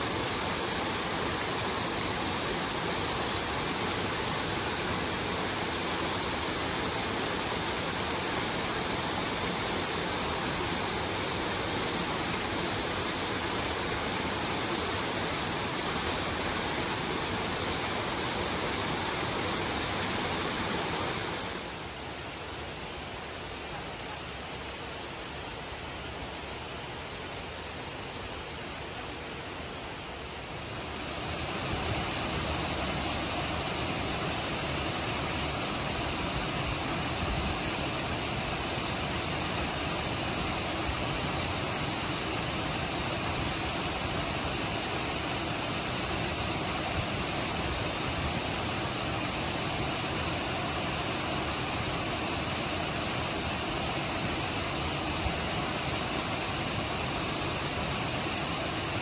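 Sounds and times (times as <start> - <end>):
mountain stream rushing: 0.0 - 59.0.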